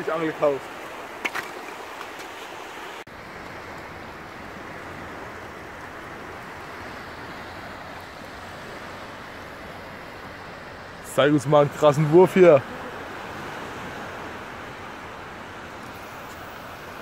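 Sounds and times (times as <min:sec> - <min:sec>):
small waves washing over sand: 0:00.0 - 0:17.0.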